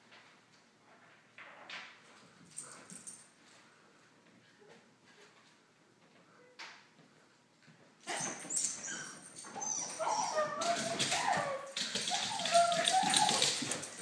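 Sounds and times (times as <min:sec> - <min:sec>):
dog whining and yipping: 0:08.1 - 0:14.0.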